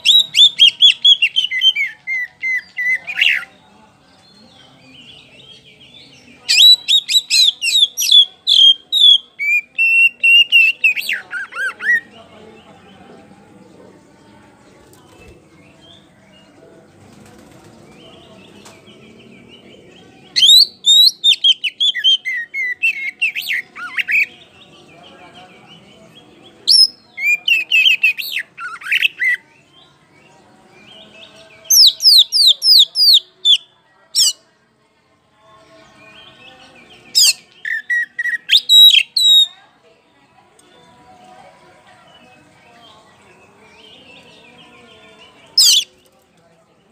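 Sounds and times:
bird whistling and chirping: 0.0s - 3.4s, 20.4s - 24.3s, 37.2s - 39.5s
songbird whistles and trills: 0.0s - 3.5s, 5.0s - 12.1s, 20.3s - 24.4s, 26.6s - 29.4s, 31.2s - 34.4s, 37.1s - 39.6s, 45.3s - 46.1s.

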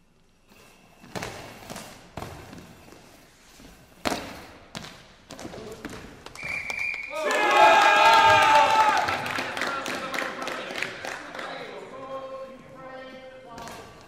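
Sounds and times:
referee whistle: 6.4s - 7.4s.

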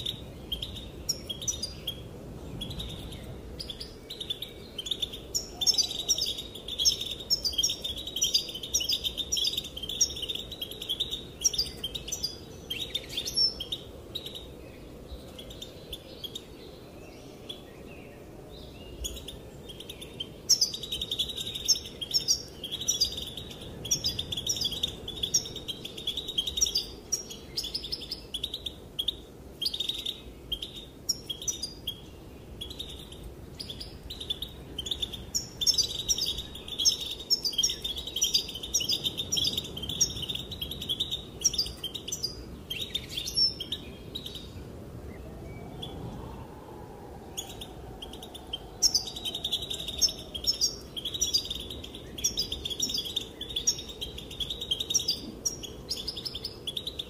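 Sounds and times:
goldfinch twittering chirps: 0.0s - 14.5s, 18.9s - 44.6s, 47.4s - 57.0s.

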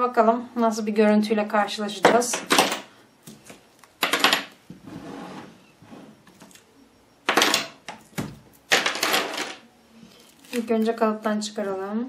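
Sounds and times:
plastic and metal clattering on table: 7.3s - 9.6s.

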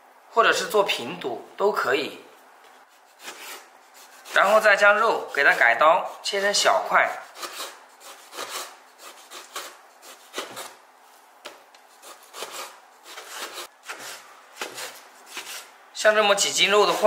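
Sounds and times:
knife cutting on cutting board: 3.0s - 4.6s, 7.1s - 10.8s, 11.5s - 15.7s.

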